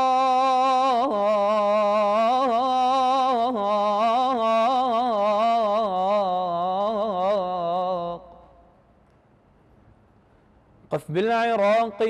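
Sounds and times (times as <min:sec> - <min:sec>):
man singing melismatic vocal: 0:00.0 - 0:08.4.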